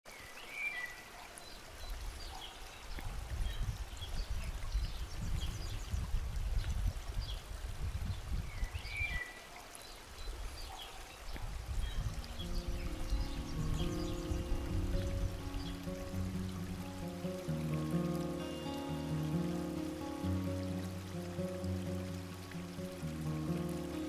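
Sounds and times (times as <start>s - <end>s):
stream burbling: 0.1s - 24.0s
small birds chirping: 8.5s - 24.0s.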